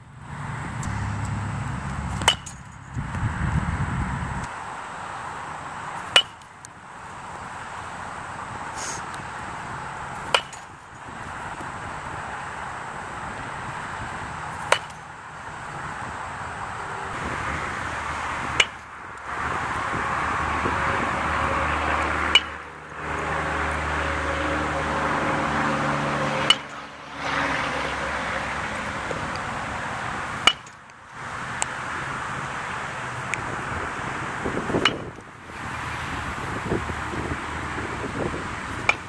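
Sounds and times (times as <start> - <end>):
baseball bat hitting balls: 0.8 - 3.2, 5.3 - 27.0, 27.8 - 30.9, 34.6 - 35.2, 38.1 - 39.0.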